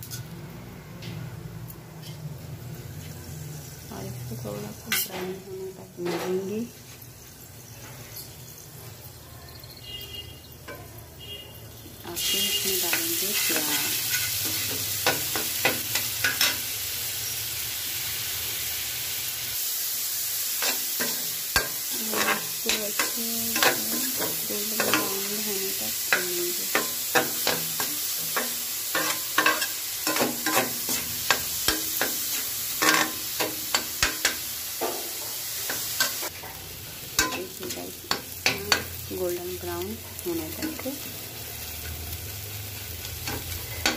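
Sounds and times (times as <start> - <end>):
onions sizzling in hot oil: 2.6 - 43.9
metal spatula scraping pan: 20.6 - 25.3, 26.1 - 34.5.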